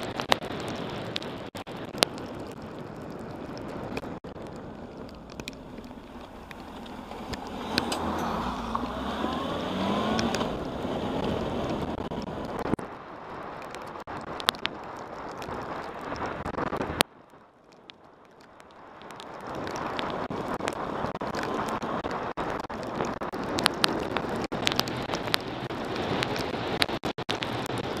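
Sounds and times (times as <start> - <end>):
wind rushing over microphone: 0.0 - 17.0
raindrops ticking on camera: 0.0 - 28.0.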